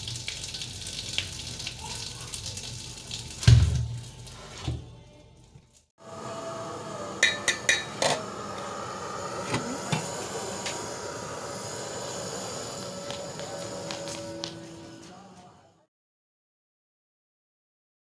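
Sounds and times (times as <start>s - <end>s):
pot and glass bowl clanking: 7.2s - 8.2s.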